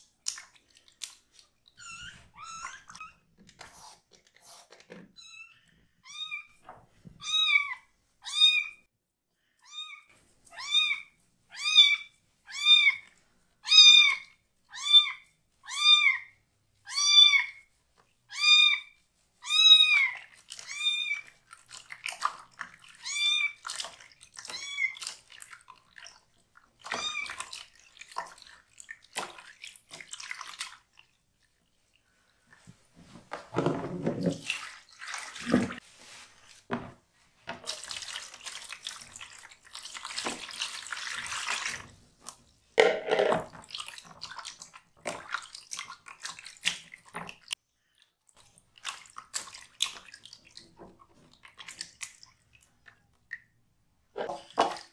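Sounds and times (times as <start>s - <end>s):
water splashing in a basin: 0.0s - 3.6s, 19.5s - 36.8s, 37.5s - 53.6s, 54.2s - 54.9s.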